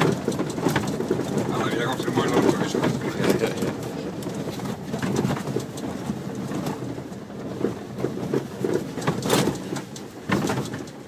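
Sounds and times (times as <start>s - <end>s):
cab knocks and rattles: 0.0s - 11.0s.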